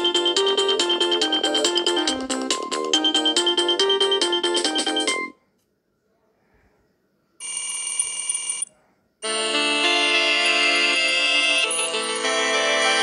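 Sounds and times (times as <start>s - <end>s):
sustained electronic ringtone chords: 0.0s - 5.3s, 9.2s - 13.0s
electronic ringtone melody: 0.0s - 5.4s, 9.2s - 13.0s.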